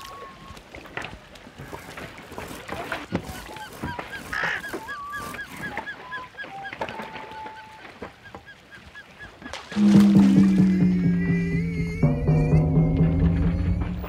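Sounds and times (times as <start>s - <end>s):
boat knocks and splashes: 0.0s - 14.0s
bird honking: 2.8s - 14.0s.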